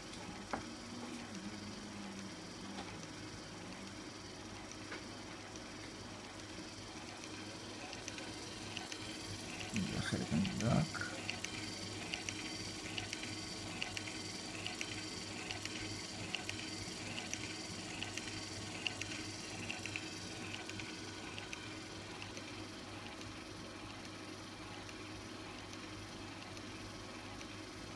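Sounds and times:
small motor running: 0.0s - 27.9s
mechanism clicking: 6.3s - 23.3s.

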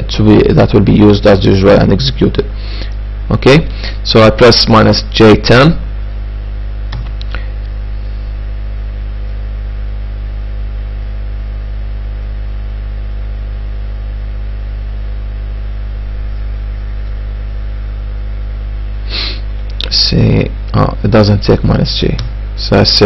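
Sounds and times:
electrical mains hum: 0.0s - 23.0s.

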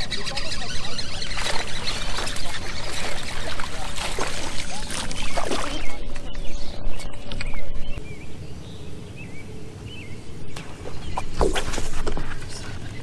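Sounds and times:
small birds chirping: 0.0s - 13.0s
fish splashing in water: 0.9s - 6.0s.

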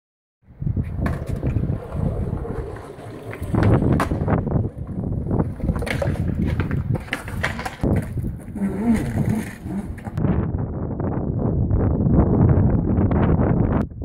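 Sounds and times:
skateboard wheels rolling on concrete: 0.5s - 13.8s
wind buffeting microphone: 0.5s - 14.0s
skateboard clacks: 0.9s - 10.2s.

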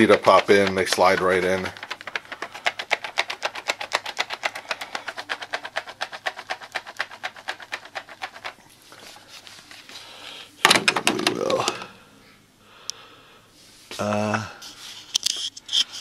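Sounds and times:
ink cartridge rattling: 0.0s - 8.6s.

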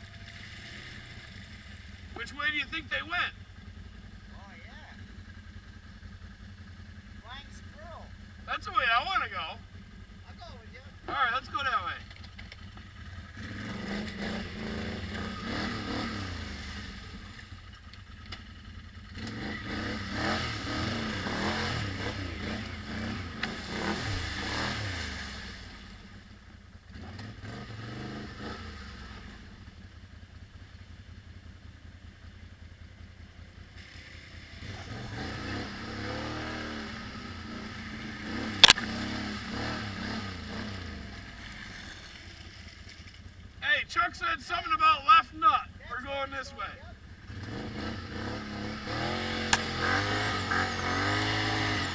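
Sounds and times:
atv engine revving: 0.0s - 51.9s.

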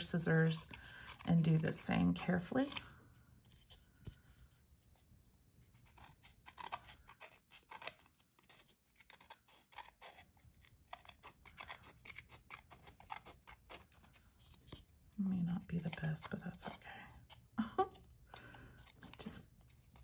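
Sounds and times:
small scissors snipping: 2.4s - 3.0s, 5.8s - 14.8s.

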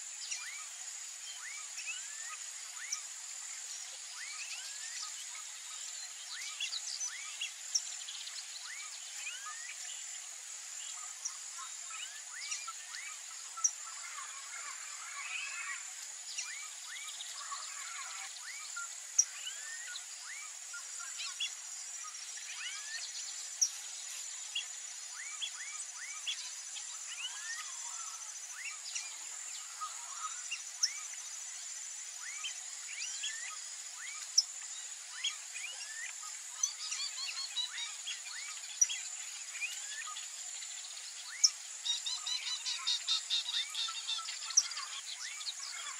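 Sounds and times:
bird chirps: 32.2s - 45.9s.

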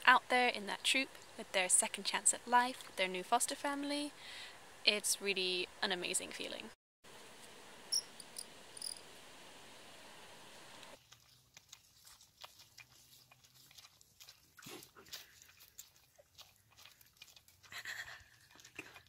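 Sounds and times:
faint outdoor hiss: 0.0s - 11.0s
monkeys sucking bottles: 11.0s - 19.0s.

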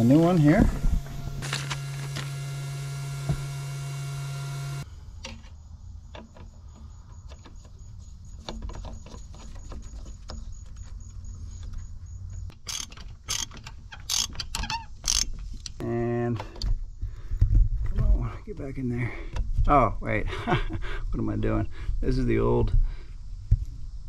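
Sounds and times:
low rumble: 0.0s - 1.7s
electrical hum: 0.0s - 5.2s
socket wrench clicking: 12.5s - 15.8s.

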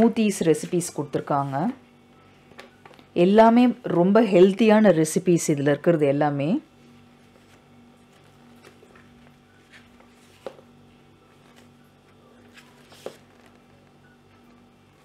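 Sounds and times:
room tone hum: 0.0s - 15.0s
paper pages turning: 7.2s - 15.0s.

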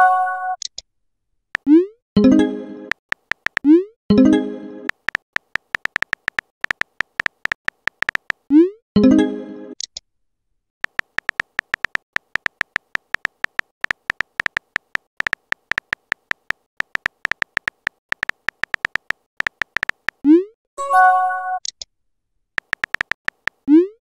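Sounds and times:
electronic key clicks: 3.0s - 3.7s, 4.9s - 8.4s, 10.8s - 20.2s, 22.6s - 23.7s
chiming message sound: 20.8s - 21.6s.

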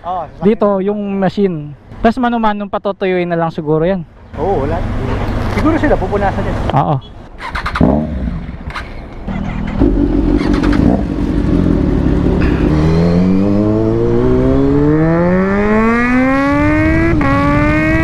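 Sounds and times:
motorcycle engine accelerating: 7.4s - 18.0s.

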